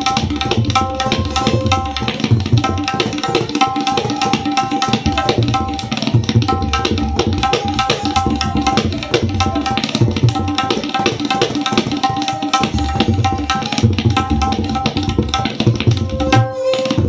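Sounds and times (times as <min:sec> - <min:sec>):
tabla high drum strokes: 0:00.0 - 0:17.0.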